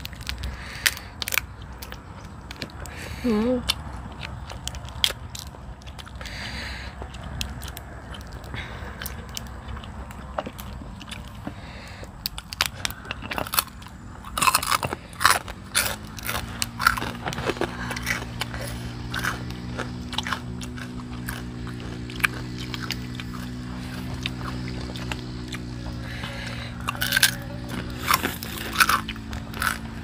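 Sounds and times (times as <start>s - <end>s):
low multi-tone hum: 0.0s - 30.0s
prawn shells crackling: 0.0s - 30.0s.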